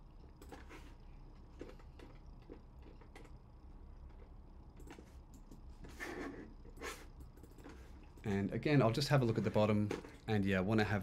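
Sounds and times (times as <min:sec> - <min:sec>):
computer mouse clicks: 0:01.6 - 0:03.4, 0:06.6 - 0:08.3.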